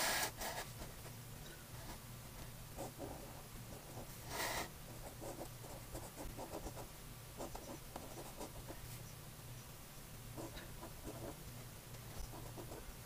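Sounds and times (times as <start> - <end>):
felt pen scratching on paper: 12.2 - 12.8.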